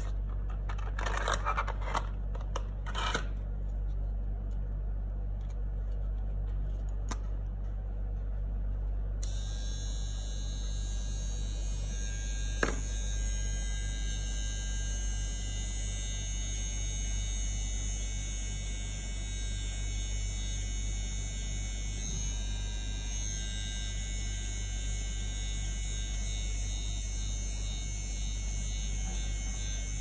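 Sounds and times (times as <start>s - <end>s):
steady low hum: 0.0s - 30.0s
trimmer motor whining: 9.2s - 30.0s.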